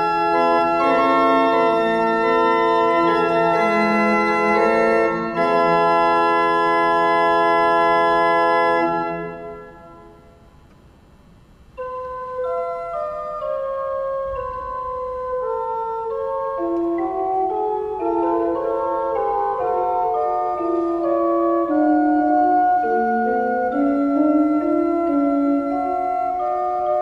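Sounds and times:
slow melody of held notes: 0:00.0 - 0:10.7, 0:11.8 - 0:27.0.

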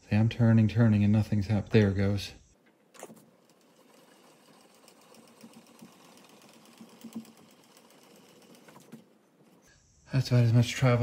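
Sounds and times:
milling machine feed screw ticking: 0:03.3 - 0:09.6.

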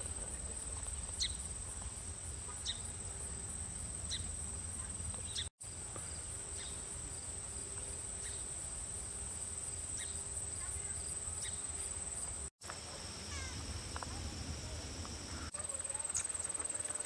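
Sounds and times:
high-pitched insect chorus: 0:00.0 - 0:17.0
low wind rumble: 0:13.0 - 0:15.5.

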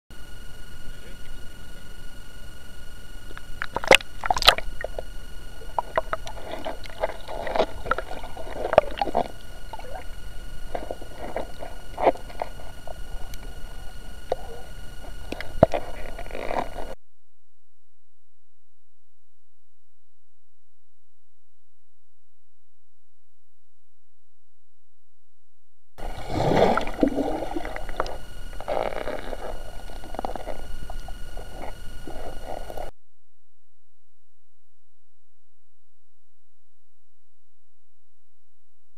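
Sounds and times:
muffled underwater sloshing: 0:03.2 - 0:17.0, 0:26.0 - 0:32.9.

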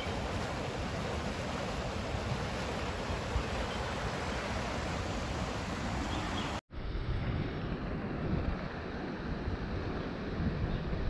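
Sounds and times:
creek rushing: 0:00.0 - 0:06.6.

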